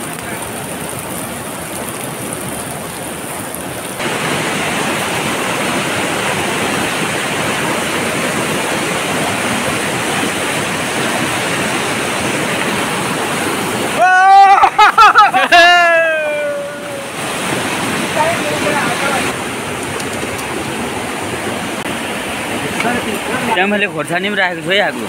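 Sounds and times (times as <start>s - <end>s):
river rushing over rocks: 0.0s - 25.0s.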